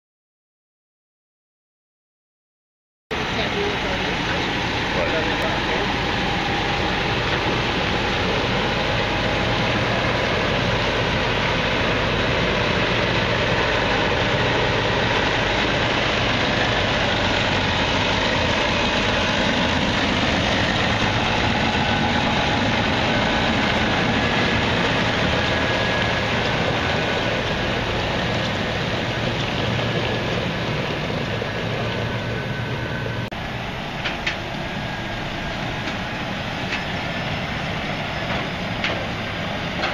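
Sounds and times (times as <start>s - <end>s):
tractor diesel engine running: 3.1s - 39.9s.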